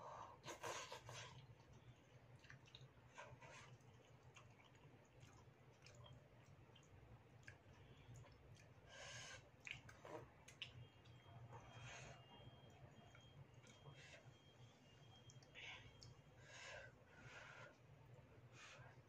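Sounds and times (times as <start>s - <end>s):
noodles slurped and chewed: 0.4s - 13.9s.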